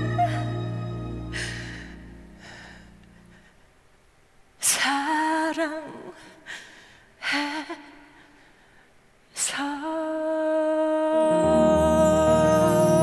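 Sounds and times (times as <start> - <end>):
woman singing with vibrato: 0.0 - 1.0, 4.6 - 6.5, 9.4 - 13.0.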